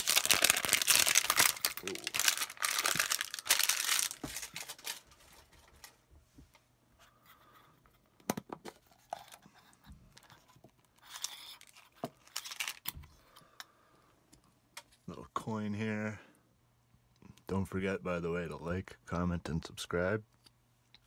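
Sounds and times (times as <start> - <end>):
packaging rustles: 0.0 - 6.0, 10.1 - 13.0.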